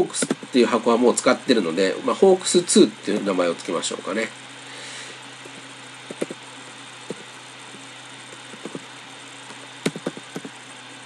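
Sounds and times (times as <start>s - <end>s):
computer fan hum: 0.0s - 11.0s
keyboard key taps: 8.6s - 8.8s, 9.8s - 10.5s.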